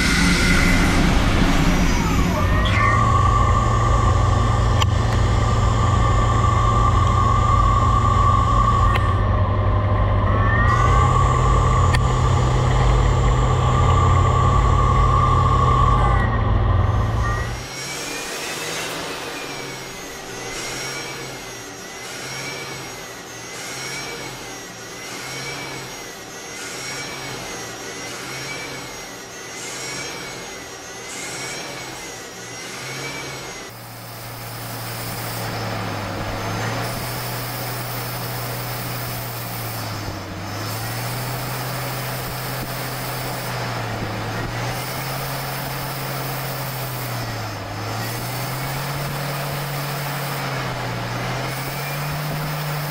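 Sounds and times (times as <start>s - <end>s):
lathe low wavering hum: 0.0s - 22.0s
lathe machine whining: 0.0s - 52.9s.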